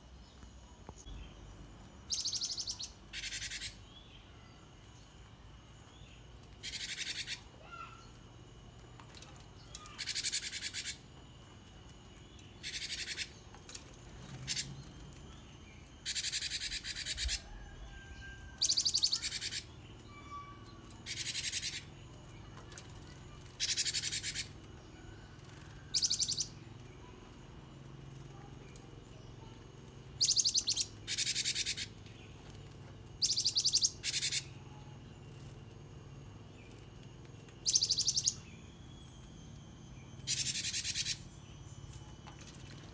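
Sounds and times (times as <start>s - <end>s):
songbird trilling: 2.1s - 4.2s, 6.0s - 8.2s, 9.6s - 11.1s, 12.5s - 13.5s, 14.4s - 22.1s, 23.6s - 24.6s, 25.2s - 27.2s, 30.2s - 32.0s, 33.2s - 34.9s, 37.6s - 42.2s.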